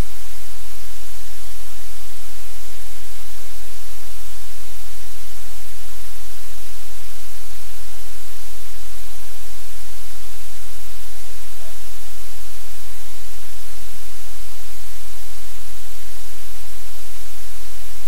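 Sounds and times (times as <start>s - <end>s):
static hiss: 0.0s - 18.0s.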